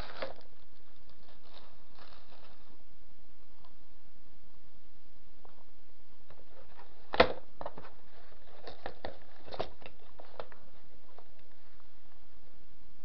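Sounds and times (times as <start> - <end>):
plastic keyboard handling noise: 6.7 - 11.3.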